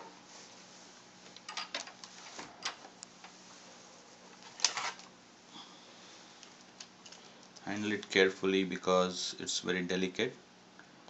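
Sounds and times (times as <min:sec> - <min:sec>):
faint steady hum: 0:00.0 - 0:11.0
rustles and clicks of handling: 0:00.2 - 0:05.2, 0:06.0 - 0:08.3.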